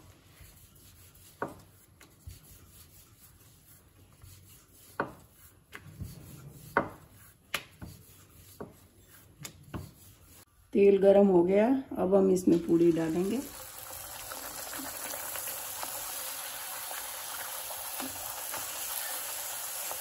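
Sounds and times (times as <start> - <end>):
rolling pin rubbing on dough: 0.0 - 10.5.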